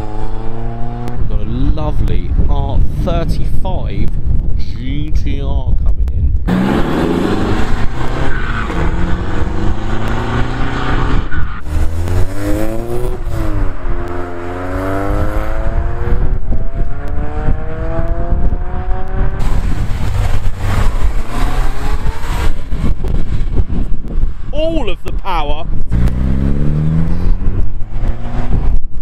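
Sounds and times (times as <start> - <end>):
car engines accelerating: 0.0 - 1.8, 6.4 - 24.5, 25.8 - 29.0.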